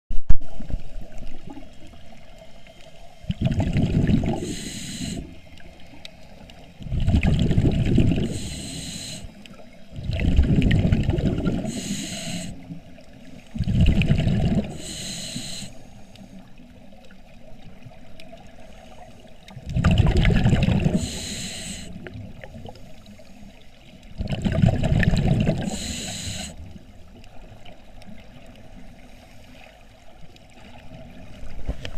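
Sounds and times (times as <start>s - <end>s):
scuba regulator bubbling exhalations: 3.2s - 5.4s, 6.8s - 9.3s, 9.9s - 12.6s, 13.5s - 15.8s, 19.6s - 22.8s, 24.2s - 26.7s
regulator hiss: 4.2s - 5.4s, 8.2s - 9.4s, 11.6s - 12.6s, 14.7s - 16.5s, 20.9s - 22.0s, 25.6s - 26.7s.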